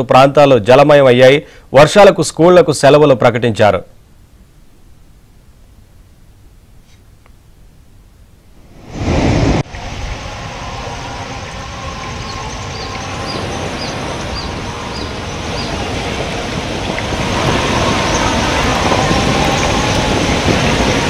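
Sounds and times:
fast-flowing river rushing: 0:08.8 - 0:21.0.

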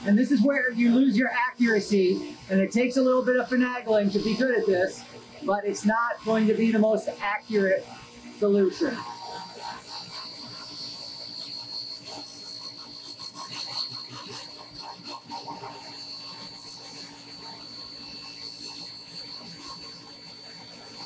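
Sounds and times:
faint high whine: 0:00.0 - 0:21.0.

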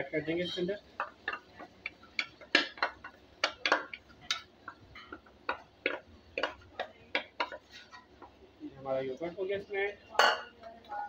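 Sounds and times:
spatula knocking on bowl and pan: 0:01.0 - 0:07.6.

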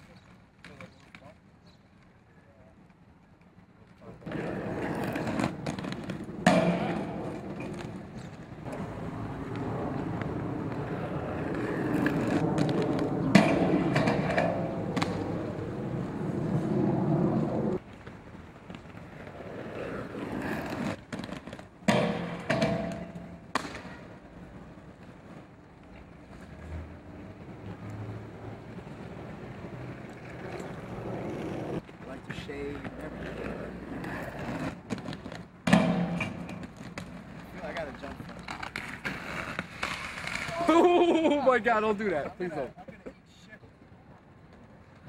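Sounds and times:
skate wheels rolling on pavement: 0:00.0 - 0:45.0
skates knocking on metal rail: 0:05.6 - 0:08.0, 0:21.8 - 0:23.8, 0:34.9 - 0:37.2.

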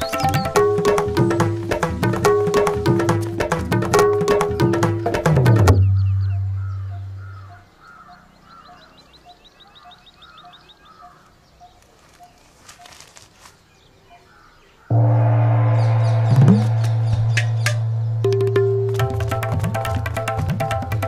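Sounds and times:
fast high chirps: 0:00.0 - 0:01.7
birds calling: 0:00.0 - 0:03.5, 0:04.1 - 0:18.8
low held music note: 0:14.9 - 0:19.0.

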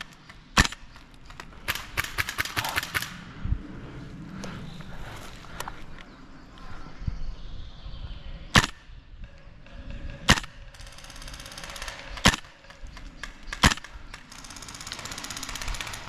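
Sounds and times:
airsoft gun shots: 0:08.6 - 0:08.8, 0:12.2 - 0:12.6, 0:13.5 - 0:13.9.

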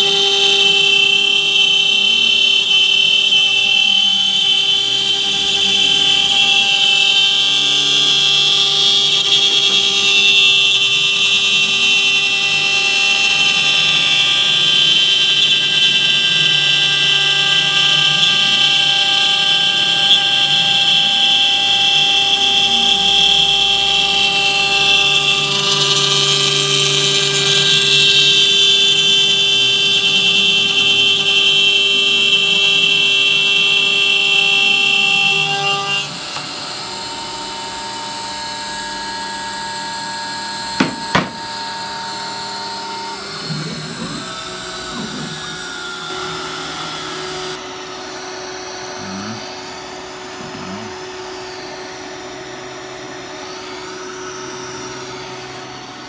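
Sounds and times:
router spindle whining: 0:00.0 - 0:56.0
hiss of wood cutting: 0:40.4 - 0:47.6.

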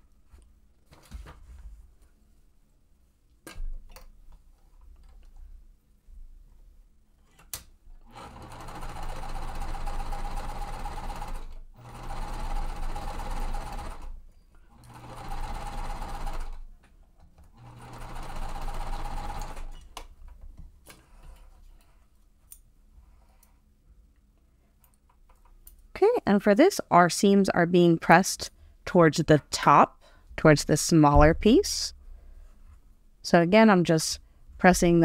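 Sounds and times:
sewing machine stitching: 0:08.0 - 0:16.6, 0:17.5 - 0:19.9.

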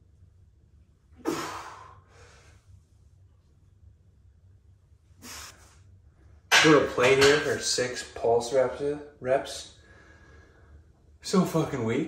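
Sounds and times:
man breathing out hard: 0:01.2 - 0:02.5.

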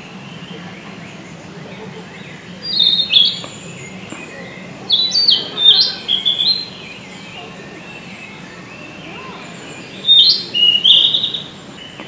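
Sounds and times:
bird singing whistled notes: 0:02.2 - 0:12.0.

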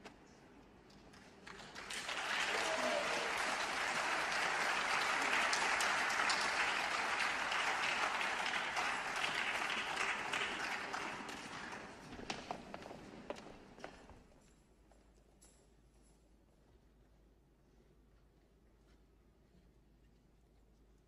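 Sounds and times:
audience applauding: 0:01.4 - 0:12.2.

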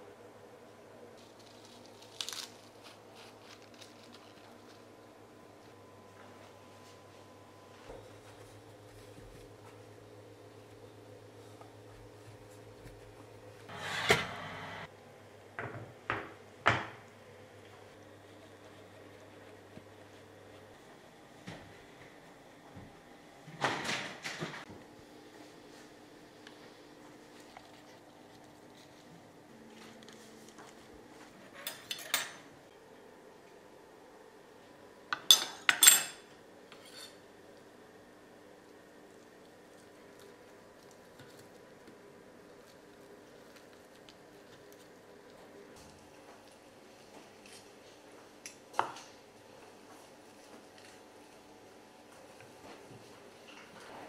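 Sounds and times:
utensils and dishes clinking: 0:31.5 - 0:32.5, 0:35.2 - 0:37.2.

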